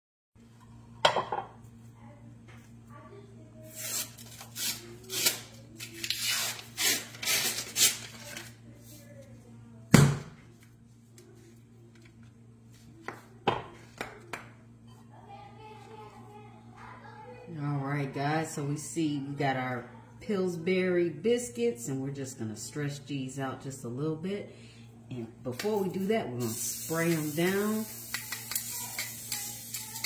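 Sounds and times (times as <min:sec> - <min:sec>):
aerosol spray hisses: 0:26.4 - 0:30.0.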